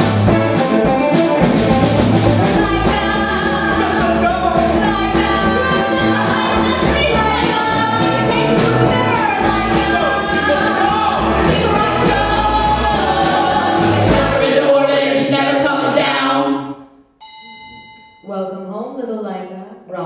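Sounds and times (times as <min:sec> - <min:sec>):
backing music with bass: 0:00.0 - 0:16.6
people singing together: 0:02.3 - 0:16.8.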